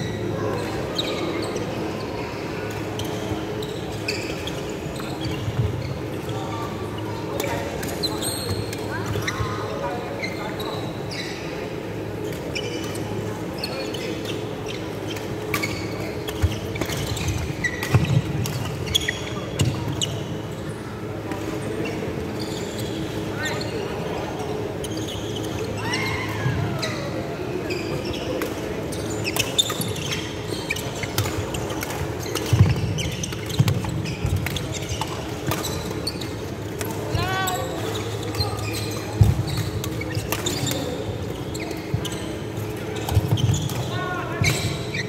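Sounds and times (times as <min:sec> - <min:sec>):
sneakers squeaking on wooden floor: 0:02.8 - 0:21.2, 0:24.5 - 0:45.0.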